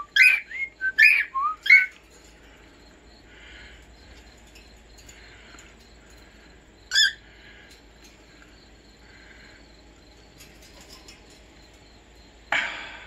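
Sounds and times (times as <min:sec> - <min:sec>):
cockatiel chirping call: 0:00.1 - 0:01.9.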